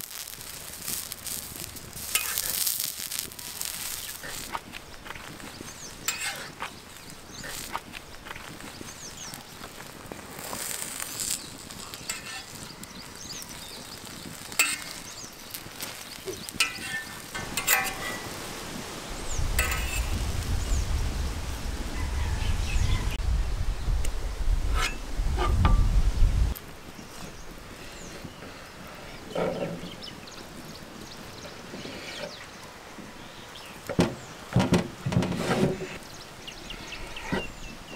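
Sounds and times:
omelette sizzling on griddle: 0.0s - 29.3s
metal spatula scraping griddle: 0.8s - 18.4s, 19.5s - 20.2s, 35.0s - 36.0s.

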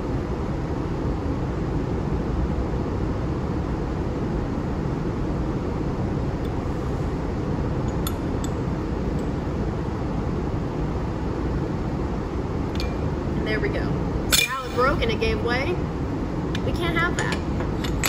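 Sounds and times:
steady low rumble: 0.0s - 18.0s
steel plates clinking: 14.3s - 15.0s.

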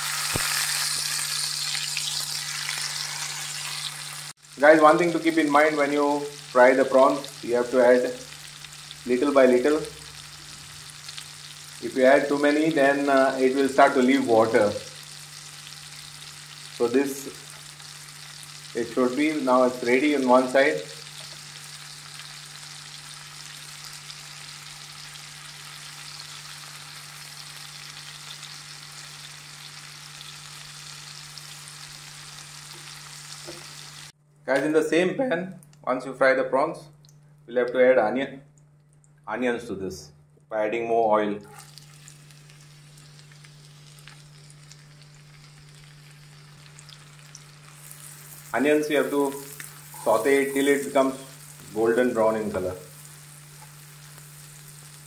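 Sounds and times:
oil popping and crackling: 0.0s - 4.4s, 41.5s - 51.9s, 52.6s - 55.0s
prawns sizzling in oil: 0.0s - 34.2s, 41.5s - 55.0s
spatula turning food in pan: 21.0s - 34.1s, 41.5s - 52.0s, 52.8s - 55.0s.

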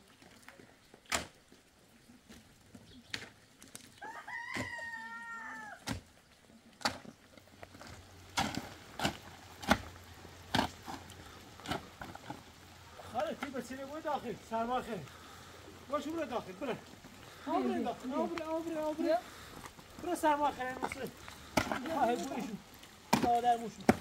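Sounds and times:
rooster crowing: 4.0s - 5.8s
shovel striking stony soil: 8.3s - 9.9s, 10.5s - 11.0s.

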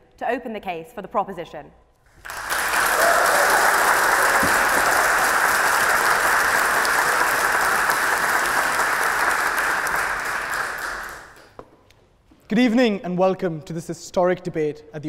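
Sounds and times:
audience applauding: 2.1s - 11.6s.

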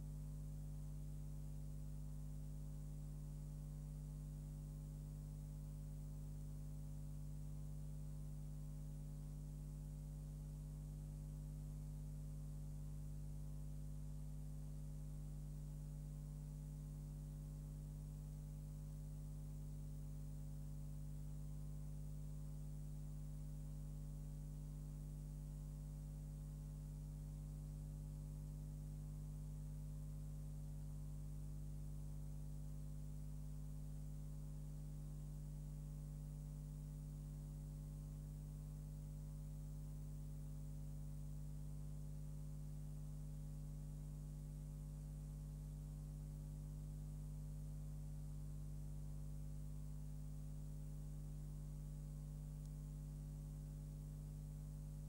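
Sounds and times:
electrical mains hum: 0.0s - 37.7s.

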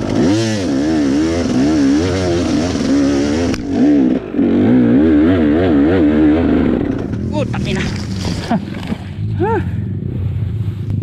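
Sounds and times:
dirt bike engine revving: 0.0s - 11.0s
rear wheel spinning in mud: 6.8s - 9.4s.

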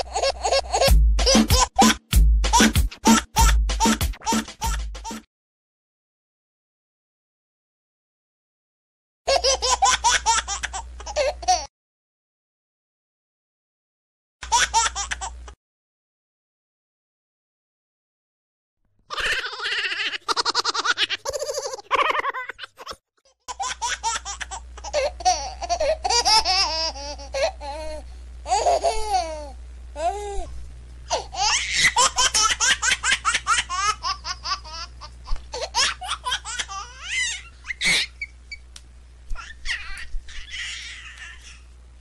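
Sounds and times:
baby giggling: 0.0s - 5.2s, 9.3s - 11.7s, 19.1s - 30.5s, 31.1s - 38.3s, 39.3s - 41.6s
low steady hum: 23.6s - 42.0s.

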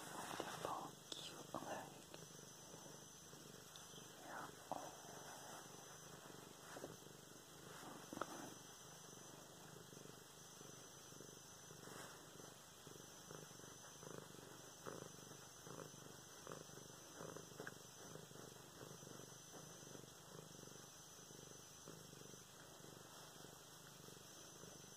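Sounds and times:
rustling in fur and bedding: 0.0s - 2.0s, 2.7s - 9.9s, 11.8s - 12.7s
cat purring: 0.0s - 24.9s.

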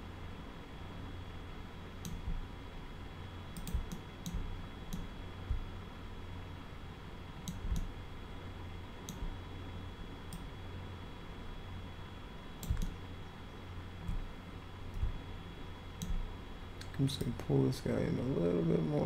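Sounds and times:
steady low hum: 0.0s - 19.0s
mouse and keyboard clicks: 12.6s - 13.0s.

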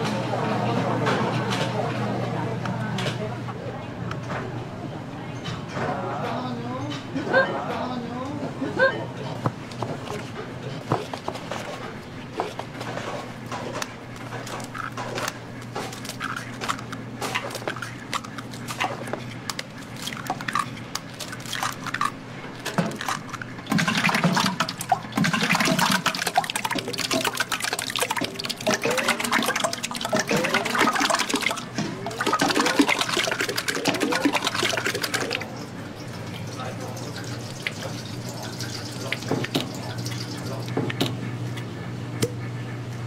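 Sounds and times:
eggs cracking against steel bowl: 13.6s - 41.2s
liquid pouring into pot: 23.0s - 40.8s.

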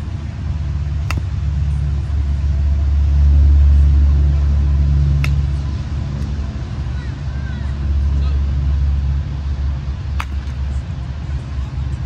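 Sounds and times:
passing motor vehicle rumble: 0.0s - 12.0s
bat hitting baseball: 1.0s - 1.5s, 5.2s - 5.6s, 10.1s - 10.7s.

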